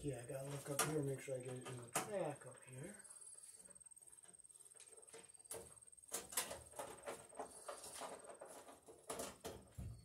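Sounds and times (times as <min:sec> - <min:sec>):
sheet metal clicks and scrapes: 0:04.2 - 0:09.9.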